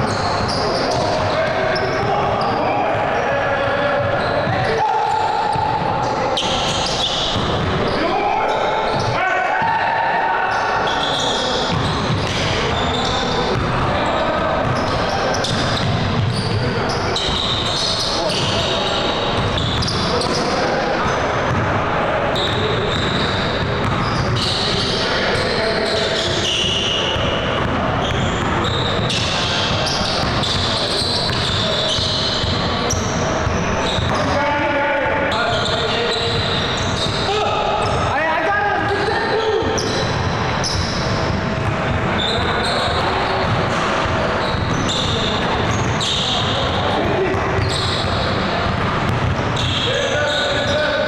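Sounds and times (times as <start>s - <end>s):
sneakers squeaking: 0.0s - 9.8s, 10.4s - 51.0s
gym court noise: 0.0s - 51.0s
players' voices: 0.0s - 51.0s
basketball bouncing: 13.5s - 13.8s, 14.6s - 17.4s, 21.0s - 21.8s, 22.5s - 25.0s, 27.2s - 32.7s, 42.9s - 49.9s.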